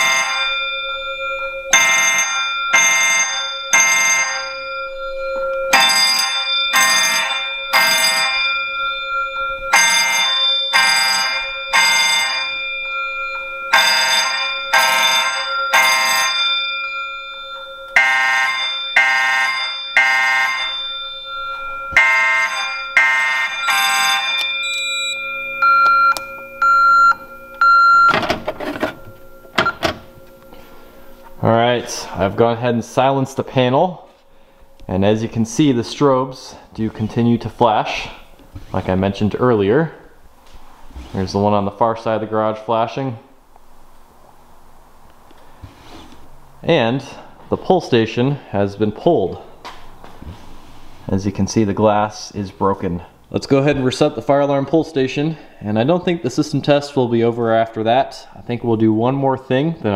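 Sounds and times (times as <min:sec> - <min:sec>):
fire alarm horns blasting: 0:00.0 - 0:40.5
steady alarm tone: 0:00.0 - 0:42.4
short high beeps: 0:23.0 - 0:28.2.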